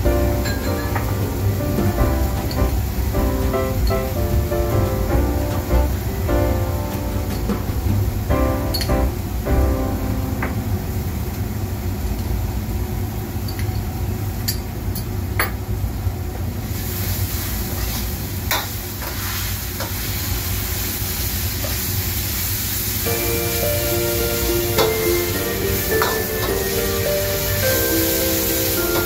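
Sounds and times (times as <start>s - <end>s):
food sizzling in a wok: 0.0s - 8.8s, 16.6s - 29.0s.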